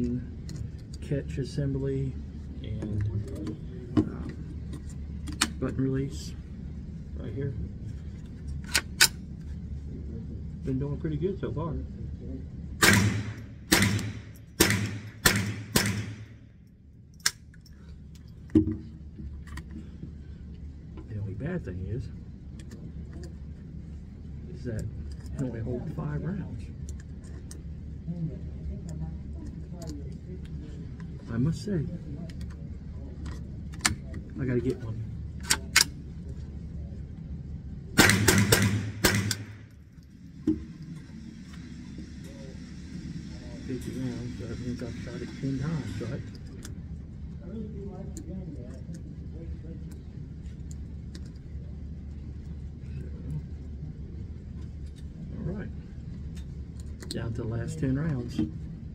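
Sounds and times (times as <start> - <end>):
rifle shots echoing indoors: 12.8 - 16.4, 38.0 - 39.7
rifle action clicks: 38.0 - 39.6.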